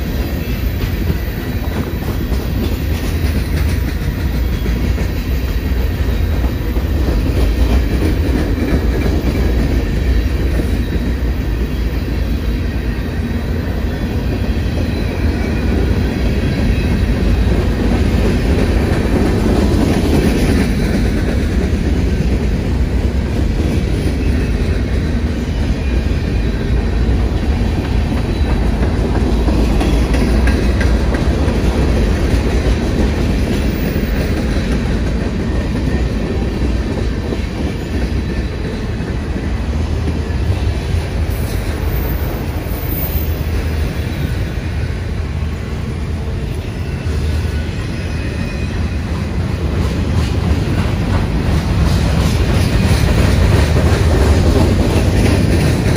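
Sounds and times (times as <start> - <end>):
train wheels rumbling on rails: 0.0 - 55.9.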